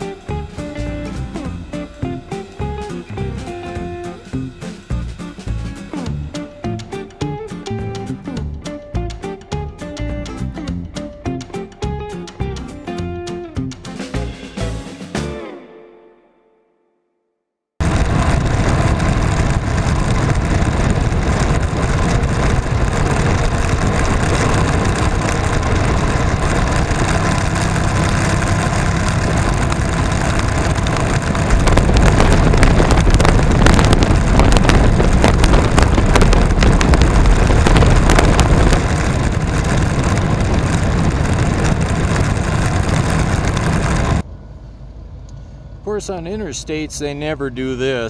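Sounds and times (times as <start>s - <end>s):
motorcycle engine and road noise: 0.0s - 15.4s, 17.8s - 48.0s
wind rushing on microphone: 17.8s - 44.2s.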